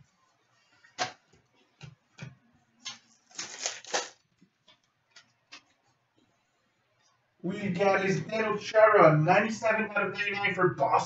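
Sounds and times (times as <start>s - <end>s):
trading cards flicking: 2.8s - 4.2s.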